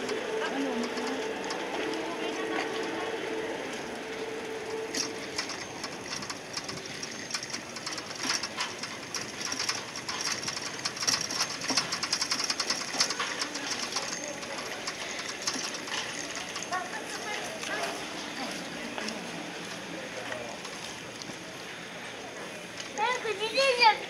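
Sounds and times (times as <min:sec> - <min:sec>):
bicycle freewheel ticking: 0:04.6 - 0:17.4.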